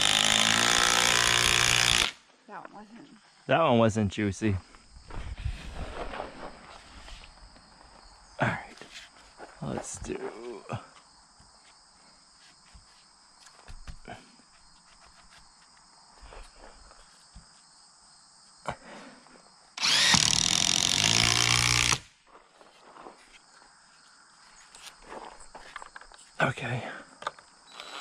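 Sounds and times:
impact driver driving screw: 0.0 - 2.2, 19.8 - 22.1.

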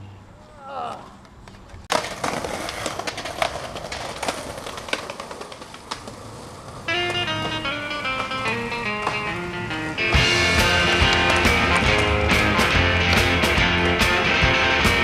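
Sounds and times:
skateboard wheels rumbling: 1.2 - 15.0
skateboards clacking on ledges: 1.2 - 15.0
guitar music: 6.9 - 15.0.

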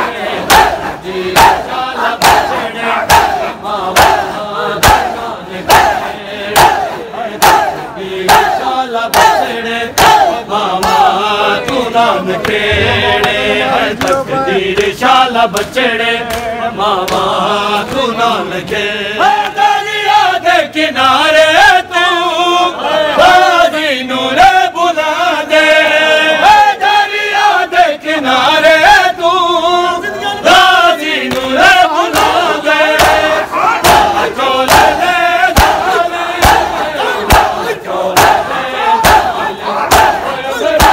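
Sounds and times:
rhythmic chest-beating slaps: 0.0 - 20.3, 30.5 - 40.9
men chanting a lament: 0.0 - 40.9.

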